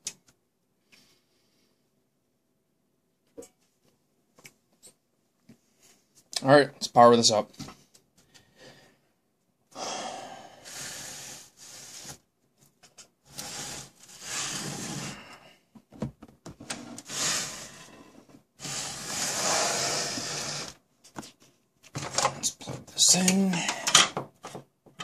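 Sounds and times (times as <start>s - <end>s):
rubbing and scraping handling noise: 10.7s - 25.0s.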